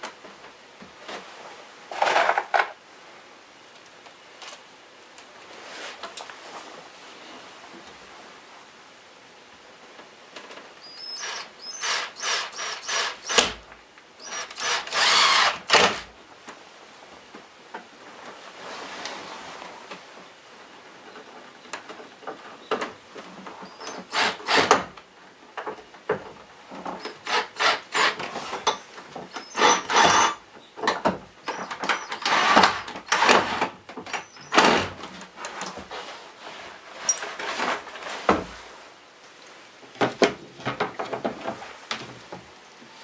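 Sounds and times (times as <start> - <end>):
wooden knocks and scrapes: 25.6 - 38.8, 40.0 - 42.5.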